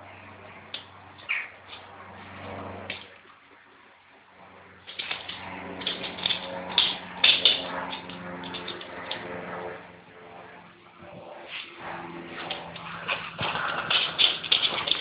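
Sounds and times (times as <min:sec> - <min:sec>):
sharp clicks and scuffles: 0:12.4 - 0:15.0.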